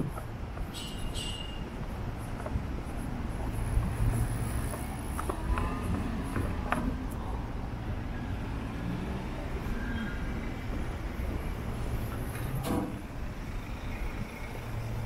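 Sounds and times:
vehicle rumbling by: 0:03.4 - 0:15.0.

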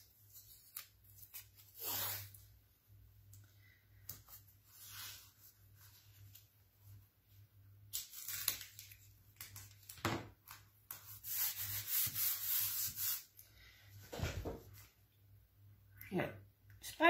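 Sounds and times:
hands rubbing tape: 0:10.9 - 0:13.4.

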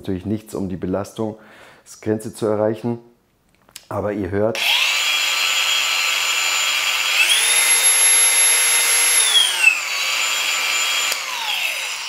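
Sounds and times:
angle grinder whining: 0:04.6 - 0:12.0.

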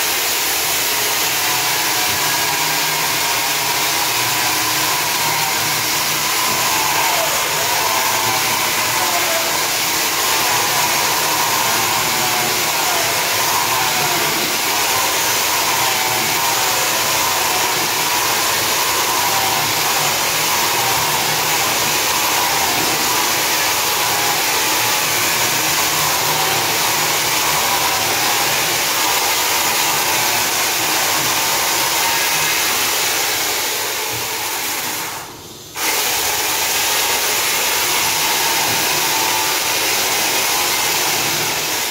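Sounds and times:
electric saw grinding into concrete: 0:00.0 - 0:41.9.

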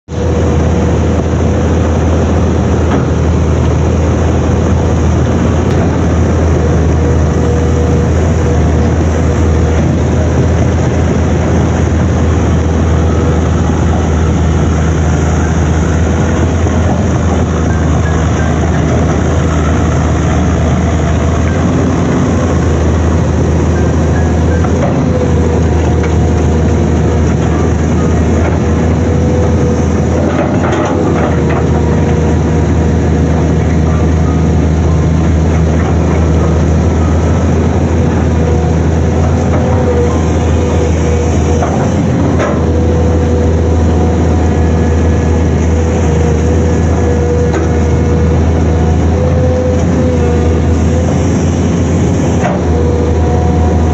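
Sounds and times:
diesel engine humming: 0:00.0 - 0:53.9.

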